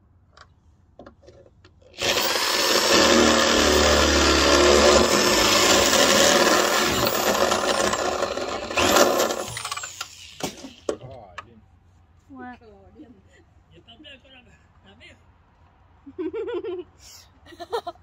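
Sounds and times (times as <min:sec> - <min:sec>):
cordless drill running: 0:02.0 - 0:10.3.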